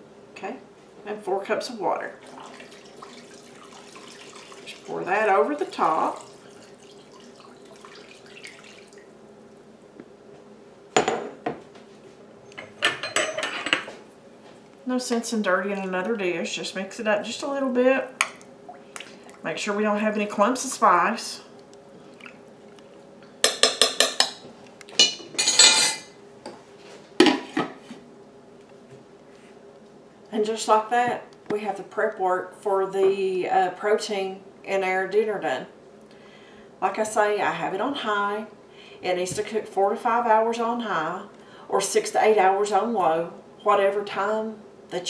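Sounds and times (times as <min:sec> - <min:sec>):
water trickling into a pot: 0:02.2 - 0:09.1.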